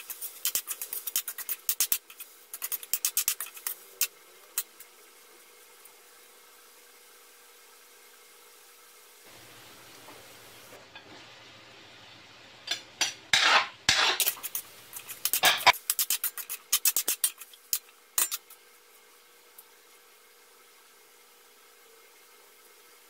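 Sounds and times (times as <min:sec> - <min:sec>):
metal spatula scraping a wok: 0:00.0 - 0:04.7, 0:13.3 - 0:18.6.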